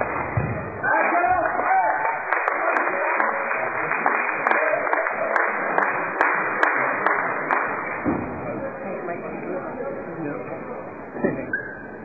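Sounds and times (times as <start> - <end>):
small audience applauding: 0.9 - 8.0.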